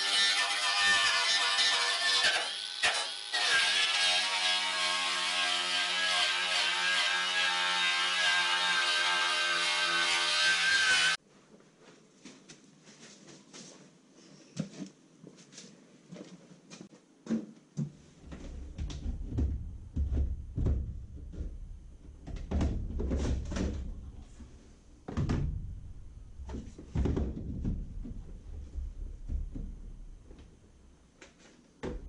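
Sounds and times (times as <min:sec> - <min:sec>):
knocks and clunks: 0:17.3 - 0:24.0, 0:25.1 - 0:30.5.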